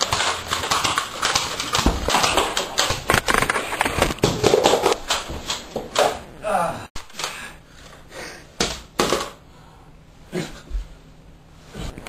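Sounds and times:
rapid clattering clicks and knocks: 0.0 - 6.2.

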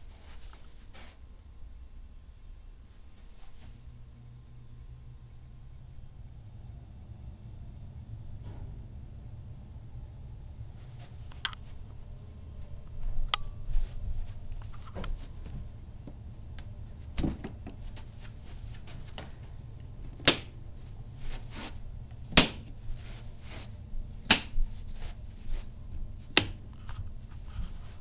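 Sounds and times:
handling clicks and rustles: 12.6 - 28.0.

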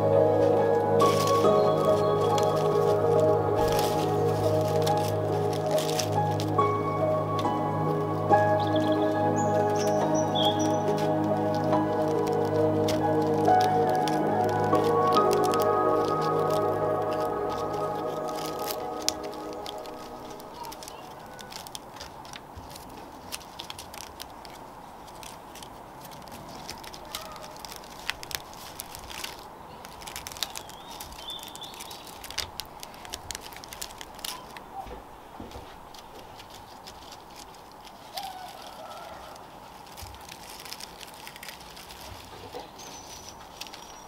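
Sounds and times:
palm leaves crackling and rustling: 0.0 - 44.0
faint bird chirps: 8.6 - 10.8.

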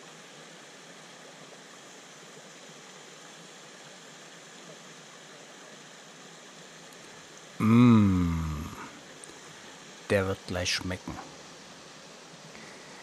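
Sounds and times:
creek running over rocks: 0.0 - 13.0
man's voice falling in pitch: 7.6 - 8.9.

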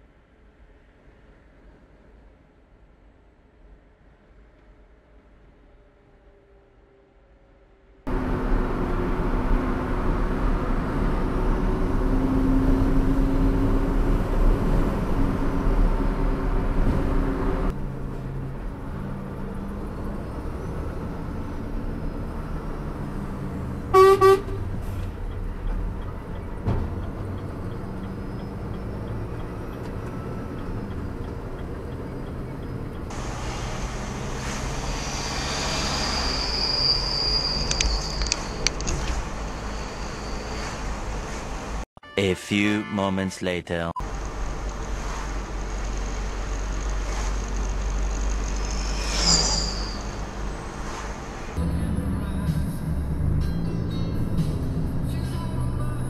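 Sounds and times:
vehicle road and engine noise: 0.0 - 41.9, 43.9 - 56.0
car horn toot: 23.9 - 24.7.

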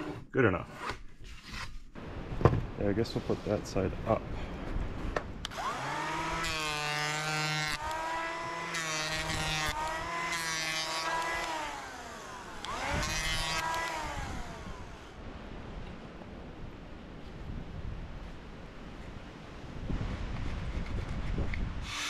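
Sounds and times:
electric planer whine: 5.5 - 15.2.

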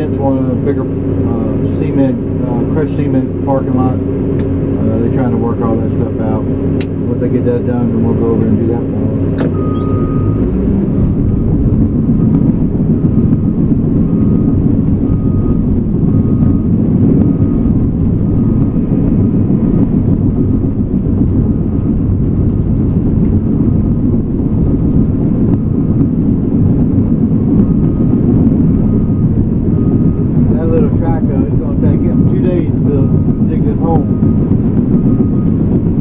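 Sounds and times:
diesel engine running: 0.0 - 36.0
faint high beep: 9.5 - 10.4.

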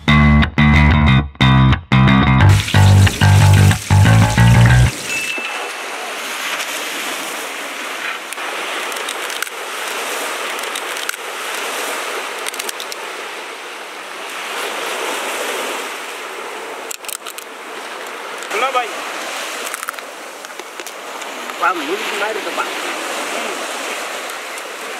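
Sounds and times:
background music: 0.0 - 4.9
sea waves washing onto shore: 2.5 - 24.9.

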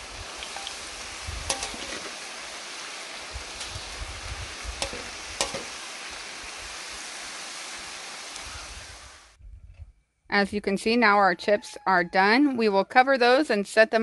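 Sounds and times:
chips sizzling in hot oil: 0.0 - 9.3
metal skimmer clinking against pan: 1.5 - 2.0, 4.8 - 5.7.

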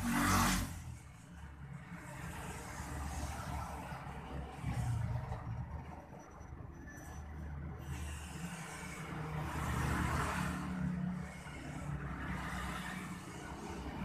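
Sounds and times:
vehicle engine rumble: 3.3 - 9.5.

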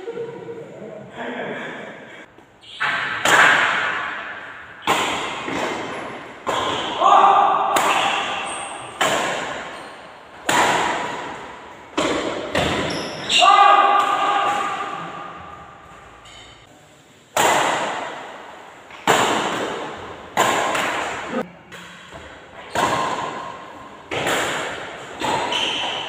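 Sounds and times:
rackets hitting shuttlecock: 2.8 - 7.0, 7.6 - 13.3, 13.9 - 15.3, 17.3 - 26.0.

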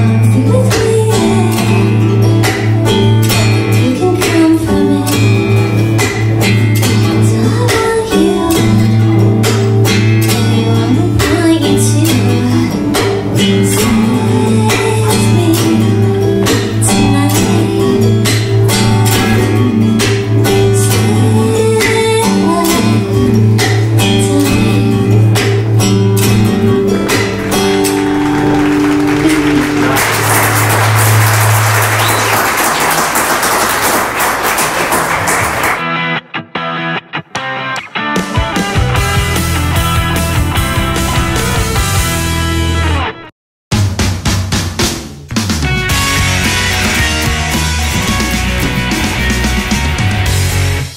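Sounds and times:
acoustic guitar strummed and picked: 0.0 - 43.2, 45.3 - 50.9
applause: 27.1 - 35.8.

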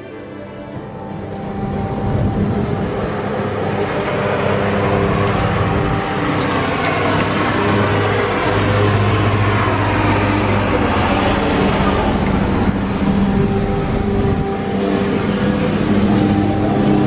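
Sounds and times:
wind rushing on microphone: 0.7 - 8.9.

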